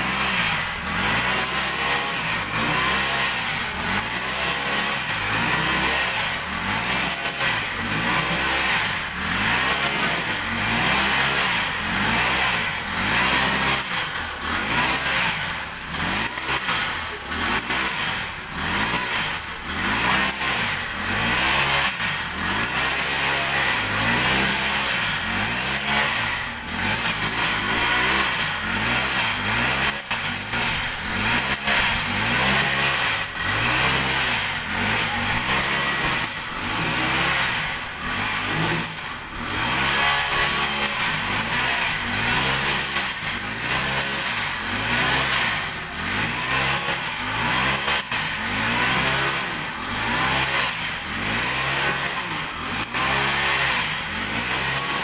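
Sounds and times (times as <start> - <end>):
brush cutter engine revving: 0.0 - 55.0.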